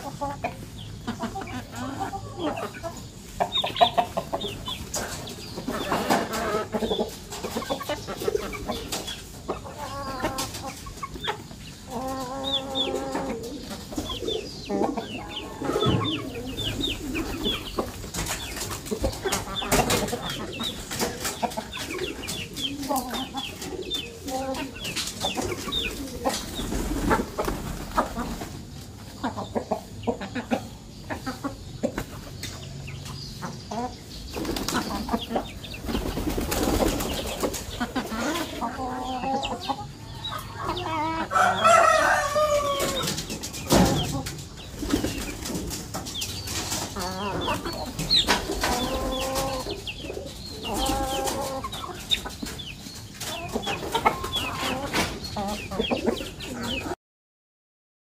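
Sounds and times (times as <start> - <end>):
chicken drawn-out call: 0.0 - 28.5, 36.4 - 45.4, 46.9 - 52.0, 53.2 - 57.0
chickens clucking: 0.0 - 57.0
chicks peeping: 0.0 - 57.0.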